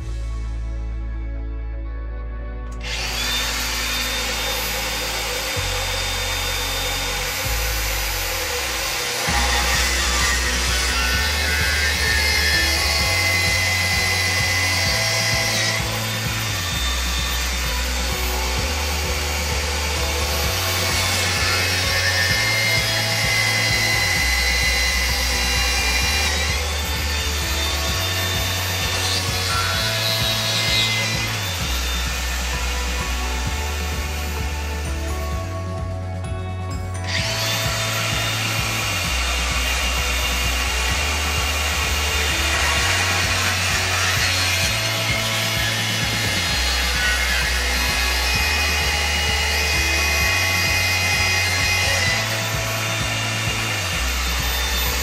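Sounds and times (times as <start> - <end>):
background music with bass: 0.0 - 55.0
drill grinding into tile: 2.7 - 36.2, 36.8 - 55.0.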